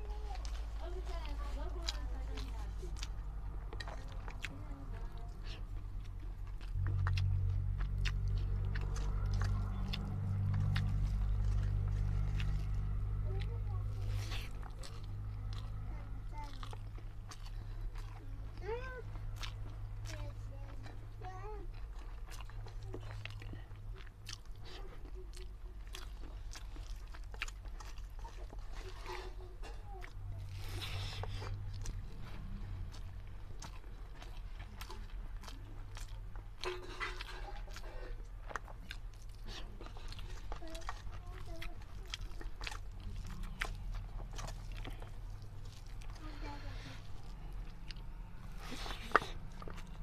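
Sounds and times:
chewing and mouth smacks: 0.0s - 50.0s.

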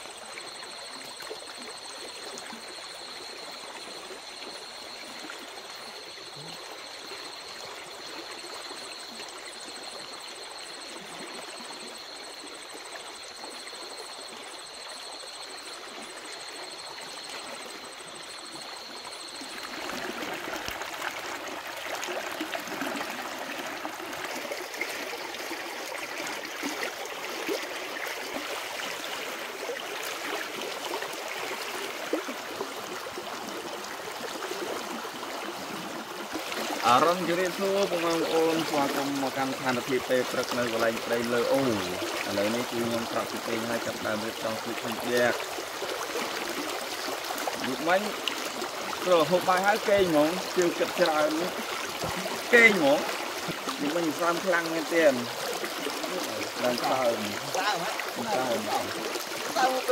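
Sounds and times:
water running: 36.4s - 59.9s.

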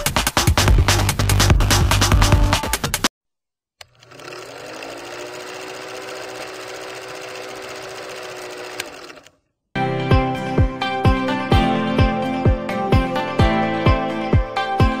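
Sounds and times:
film projector rattling and whirring: 3.8s - 9.4s.

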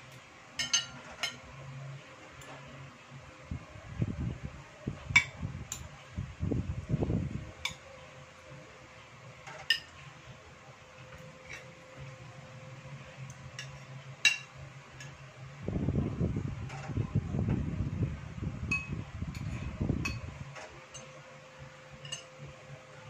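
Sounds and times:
faint steady hum: 0.0s - 23.0s
cutlery clinking on ceramic plates: 0.6s - 1.4s, 22.0s - 22.4s.

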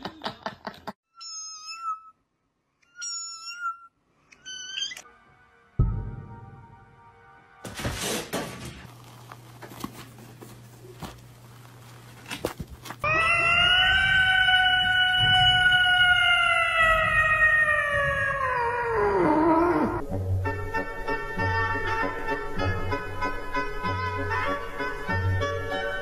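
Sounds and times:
cat yowling: 13.0s - 20.0s.

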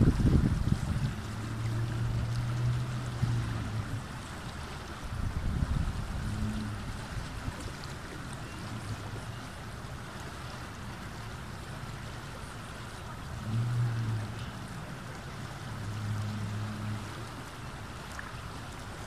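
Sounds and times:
low hum: 0.0s - 11.8s, 12.4s - 18.9s
river flowing over rocks: 0.0s - 19.0s.

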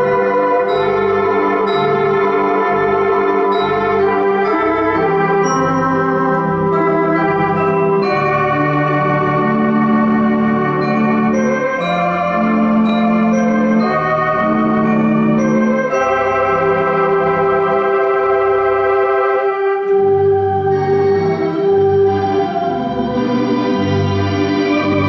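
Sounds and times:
electronic organ playing slow chords: 0.0s - 25.0s.

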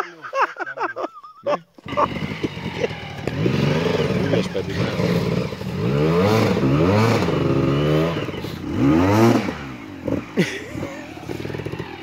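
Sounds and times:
engine knocks: 1.8s - 5.6s
dirt bike engine revving: 1.8s - 12.0s.

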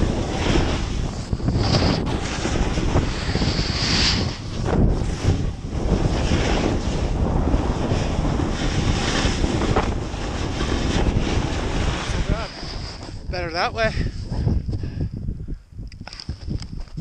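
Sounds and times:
sliding on snow scraping hiss: 0.0s - 13.2s
wind on microphone: 0.0s - 17.0s.

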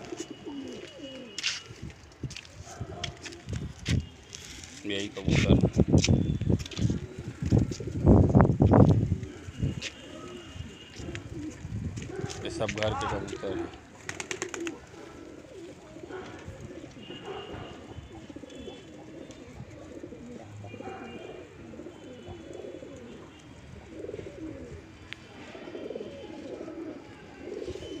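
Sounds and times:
pigeons cooing: 0.0s - 3.6s, 6.6s - 28.0s.

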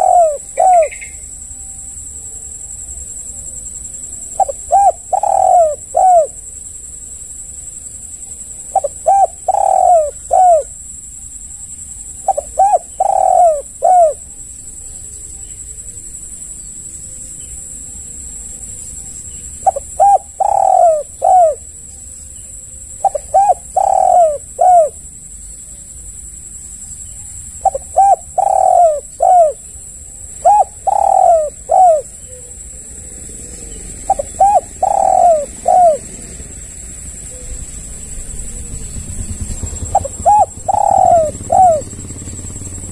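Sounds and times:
dove cooing: 0.0s - 1.3s, 4.3s - 6.5s, 8.4s - 10.8s, 12.0s - 14.5s, 19.5s - 21.8s, 22.8s - 25.1s, 27.2s - 36.5s, 37.1s - 42.9s.

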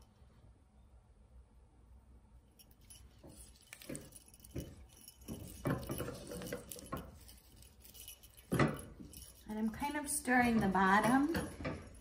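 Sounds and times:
small bells jingling: 2.5s - 12.0s.

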